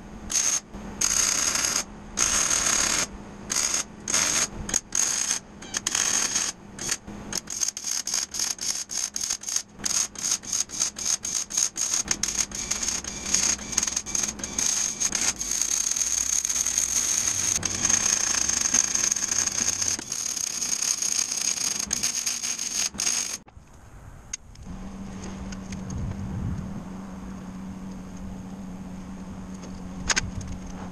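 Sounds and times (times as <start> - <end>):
welder arc crackling: 0.0 - 23.5.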